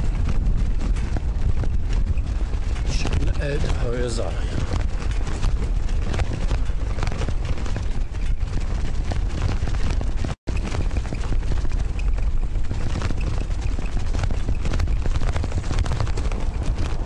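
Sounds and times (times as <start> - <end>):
bicycle rattling: 0.0 - 17.0
wind buffeting microphone: 0.0 - 17.0.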